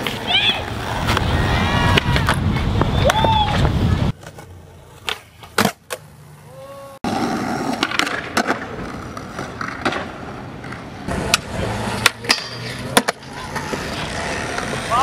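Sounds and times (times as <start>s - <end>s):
skateboard wheels rolling on concrete: 0.0s - 15.0s
skateboard clacks: 7.1s - 15.0s.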